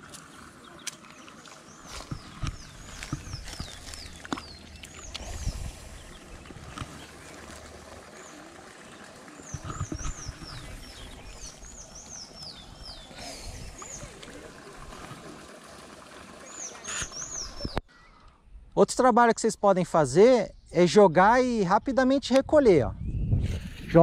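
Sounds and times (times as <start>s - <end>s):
rustles: 0.0s - 8.5s.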